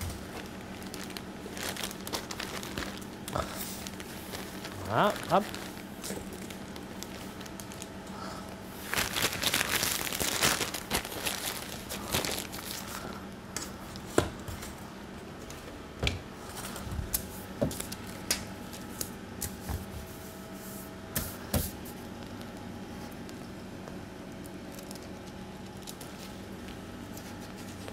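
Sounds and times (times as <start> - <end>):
baking parchment crinkling: 0.0 - 8.0, 8.8 - 14.8
steady low hum: 0.0 - 27.9.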